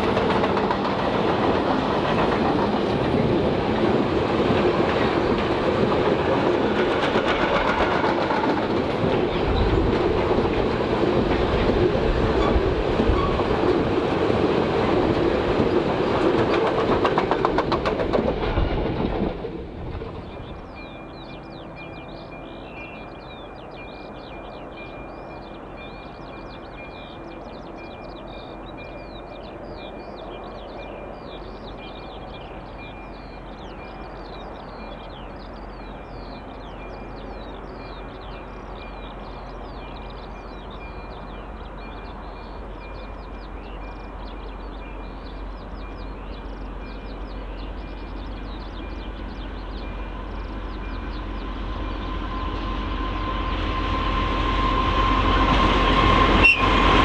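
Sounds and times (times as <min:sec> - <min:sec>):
diesel locomotive rumble: 0:00.0 - 0:57.0
birds chirping: 0:14.8 - 0:57.0.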